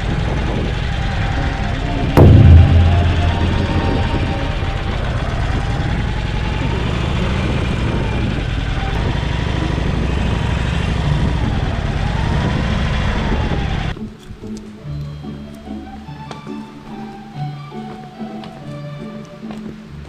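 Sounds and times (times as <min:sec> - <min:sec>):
wind and road noise: 0:00.0 - 0:02.2, 0:03.7 - 0:20.0
motorcycle engine rumbling: 0:00.0 - 0:13.9.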